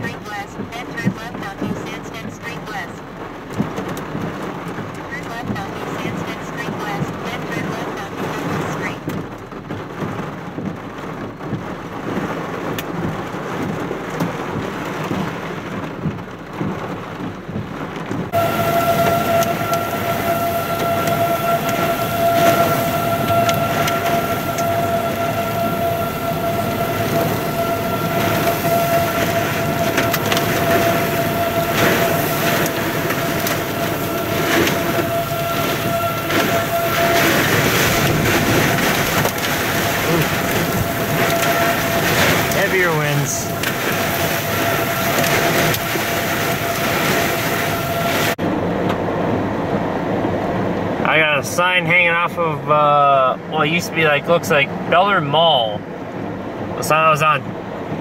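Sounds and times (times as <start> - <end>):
heavy rain on vehicle: 0.0 - 58.0
steady high tone: 18.4 - 48.4.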